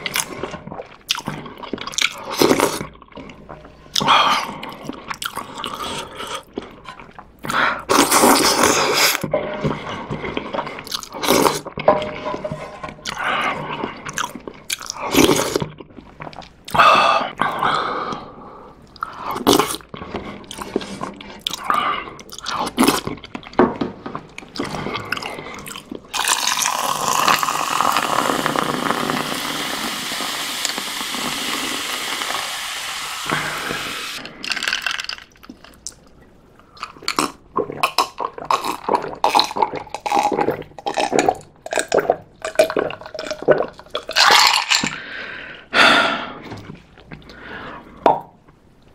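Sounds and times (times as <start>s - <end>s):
chewing: 0.0s - 12.2s, 13.0s - 16.8s, 18.9s - 27.8s
gulping water: 0.0s - 23.4s, 24.2s - 45.4s
slurping broth from a spoon: 24.6s - 34.7s
water pouring into a glass: 26.2s - 35.4s.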